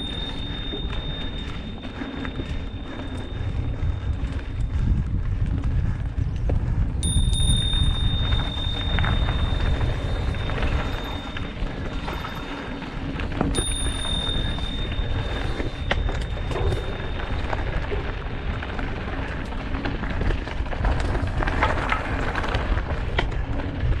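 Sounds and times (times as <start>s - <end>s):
high steady whine: 0.0s - 4.9s, 7.0s - 20.1s
bike tyres crunching over gravel: 0.0s - 24.0s
wind buffeting microphone: 0.0s - 24.0s.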